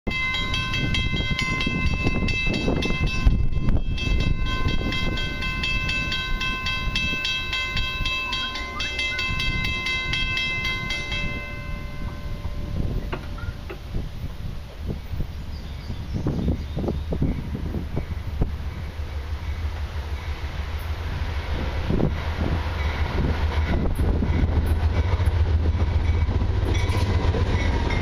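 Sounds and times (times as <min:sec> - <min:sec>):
level-crossing bell ringing: 0:00.1 - 0:13.7
wind rumble on microphone: 0:00.1 - 0:19.6, 0:21.0 - 0:28.0.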